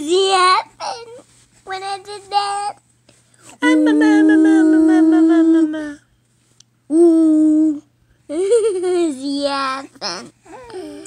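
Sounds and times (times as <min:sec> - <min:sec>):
person humming: 0:03.6 - 0:06.0.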